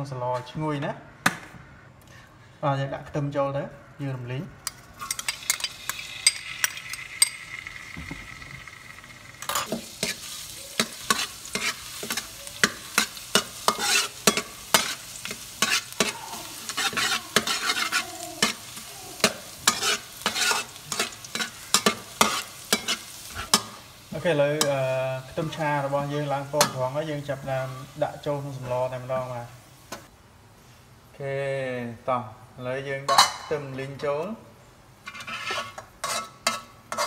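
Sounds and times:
garlic sizzling in oil: 0:04.9 - 0:30.1
spatula scraping a wok: 0:05.0 - 0:24.0, 0:35.0 - 0:37.0.

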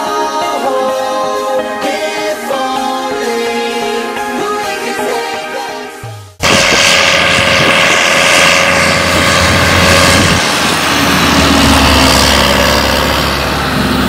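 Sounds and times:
tractor diesel engine under load: 0:06.4 - 0:14.0.

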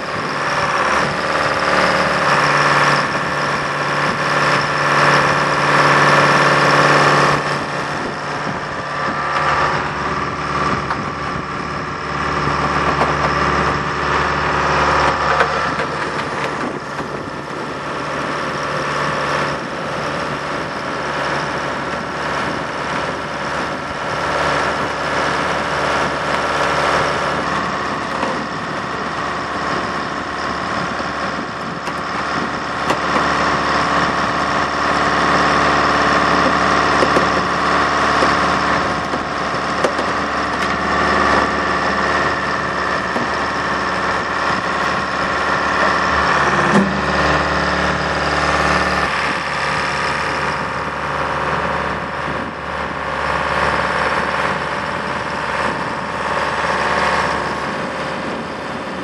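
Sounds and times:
diesel engine idling: 0:00.0 - 0:59.0.

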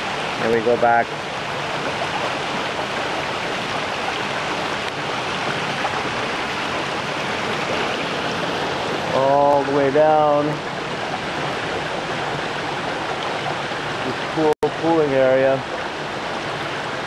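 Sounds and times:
water rushing over rocks: 0:00.0 - 0:17.0.

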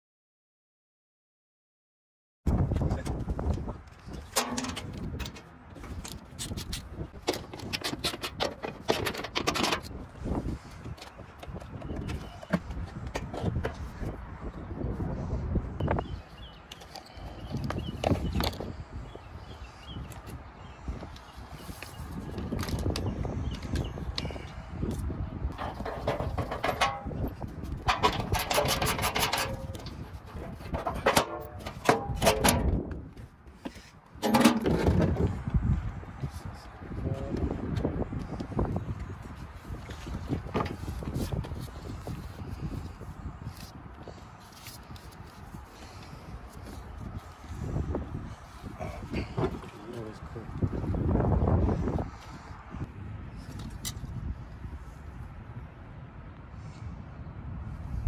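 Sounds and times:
latches clicking and panels knocking: 0:04.3 - 0:05.5, 0:07.2 - 0:09.9, 0:25.6 - 0:32.9, 0:34.2 - 0:35.2.

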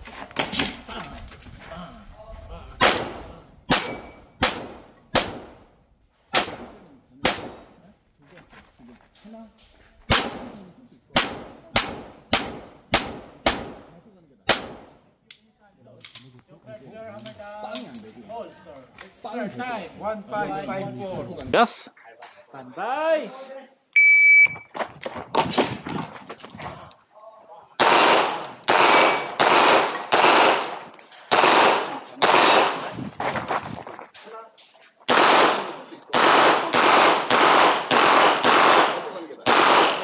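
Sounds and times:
pistol shots echoing: 0:02.8 - 0:05.6, 0:06.3 - 0:07.7, 0:10.1 - 0:13.9, 0:14.5 - 0:15.0, 0:27.8 - 0:32.8, 0:35.1 - 0:40.0.

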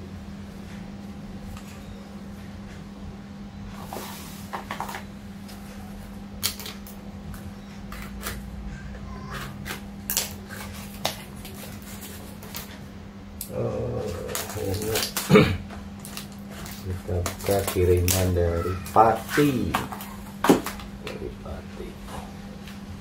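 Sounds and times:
steady low hum: 0:00.0 - 0:23.0
paper rustling: 0:10.4 - 0:12.8, 0:16.0 - 0:20.8.

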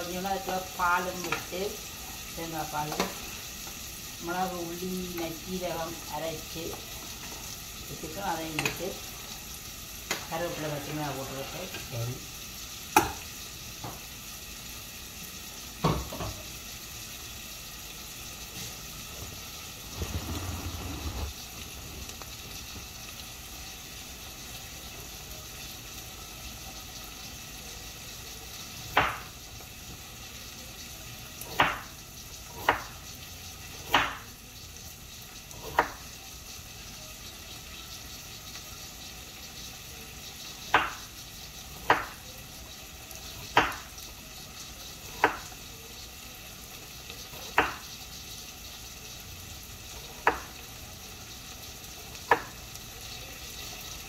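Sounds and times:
pots hissing on stove: 0:00.0 - 0:54.0
knife chopping on wooden board: 0:29.0 - 0:29.3, 0:33.9 - 0:34.2, 0:41.9 - 0:42.2, 0:43.5 - 0:43.8.

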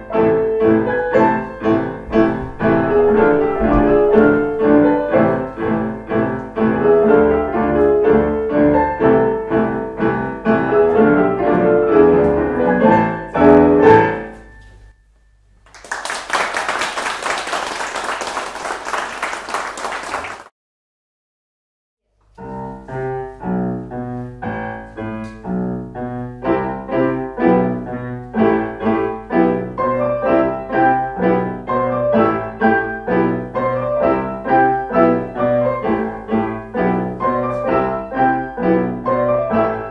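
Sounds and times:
piano music: 0:00.0 - 0:14.9, 0:22.4 - 0:39.9
audience applause: 0:15.6 - 0:20.5.

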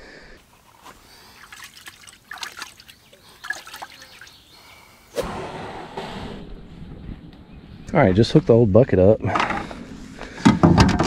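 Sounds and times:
water sloshing in plastic bucket: 0:01.3 - 0:04.2.

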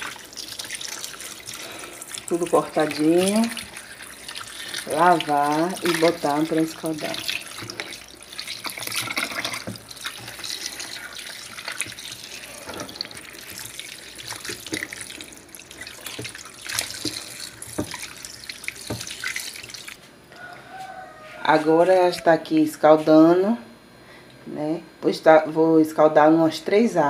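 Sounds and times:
tap water running into metal pot: 0:00.0 - 0:20.0
hands rubbing meat in water: 0:00.0 - 0:20.1
water splashing and sloshing: 0:00.0 - 0:20.2.

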